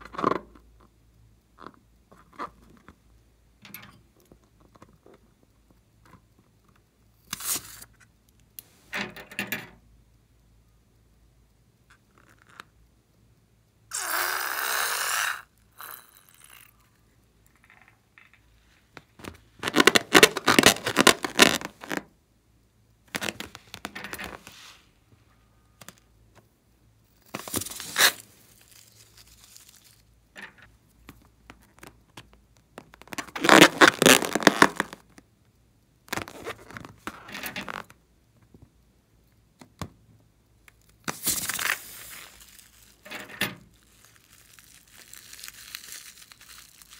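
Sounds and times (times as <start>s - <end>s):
slime squirting from balloons: 13.9s - 16.7s.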